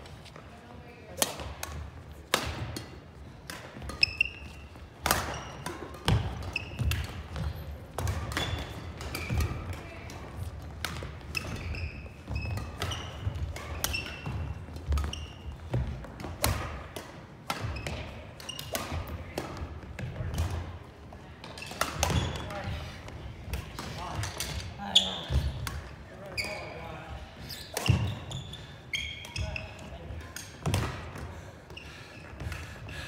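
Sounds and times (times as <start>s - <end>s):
racket hitting shuttlecock: 1.1s - 20.7s, 21.4s - 22.5s, 30.3s - 31.2s
shoe squeaks on floor: 4.0s - 5.6s, 6.4s - 7.0s, 11.3s - 15.7s, 26.2s - 30.0s.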